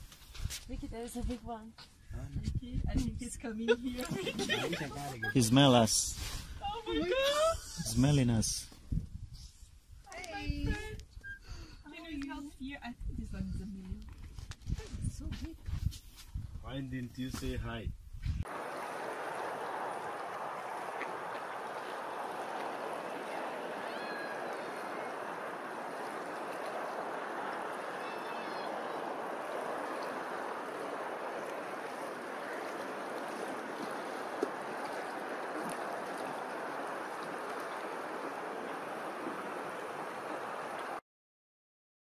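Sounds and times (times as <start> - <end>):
water lapping: 3.7 - 8.4, 18.5 - 41.0
faint bird calls: 20.6 - 26.0, 27.6 - 29.2.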